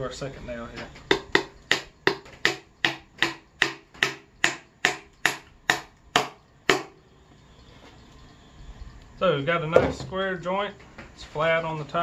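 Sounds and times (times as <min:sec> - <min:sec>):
hammer driving nail into wood: 0:01.1 - 0:07.0.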